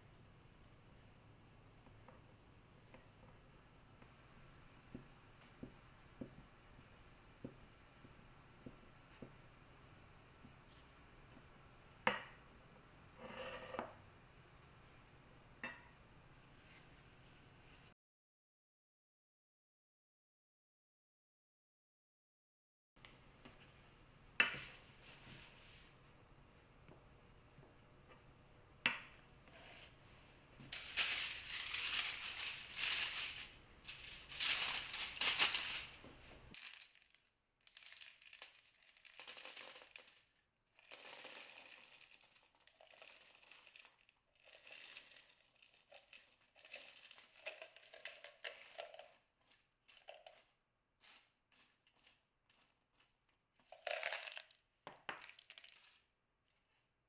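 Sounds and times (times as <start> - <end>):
aluminium foil crinkling: 30.7 - 56.1.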